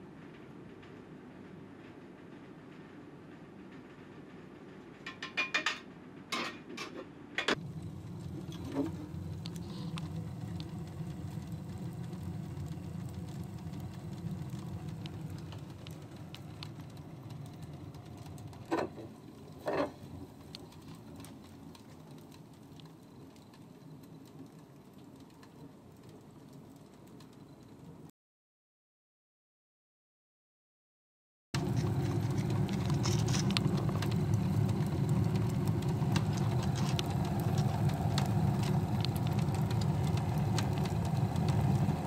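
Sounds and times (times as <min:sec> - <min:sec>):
fire rumbling in stove: 0:07.5 - 0:28.1, 0:31.6 - 0:42.0
fire crackling and snapping: 0:07.6 - 0:28.1, 0:31.6 - 0:42.0.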